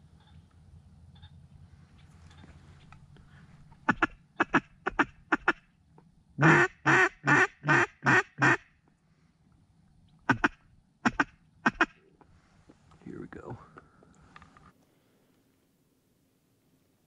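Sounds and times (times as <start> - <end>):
duck call quacking: 3.8 - 5.6, 6.4 - 8.7, 10.3 - 12.0.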